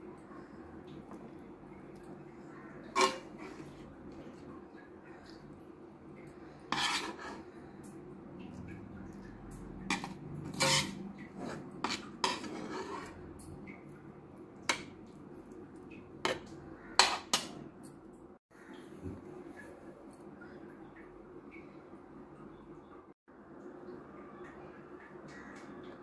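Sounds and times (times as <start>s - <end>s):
spoon scraping a bowl: 2.8s - 4.4s, 6.7s - 7.6s, 9.8s - 13.3s.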